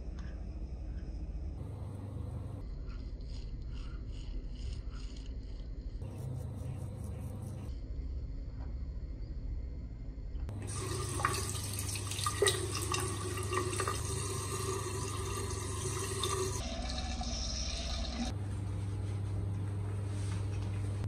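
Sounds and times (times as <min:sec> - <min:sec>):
tap water running into sink: 0:10.5 - 0:18.3
water splashes and drips: 0:10.5 - 0:18.3.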